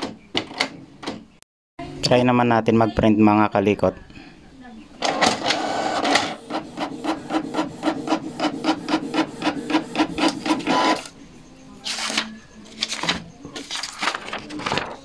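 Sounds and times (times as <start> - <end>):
printer carriage shuttling: 5.0 - 11.1
printer page feed whir: 5.0 - 11.2.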